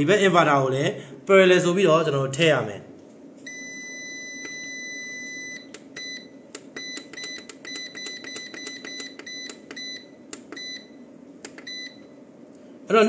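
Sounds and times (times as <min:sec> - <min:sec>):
low steady hum: 0:00.0 - 0:13.0
short key-press beeps: 0:05.5 - 0:10.9.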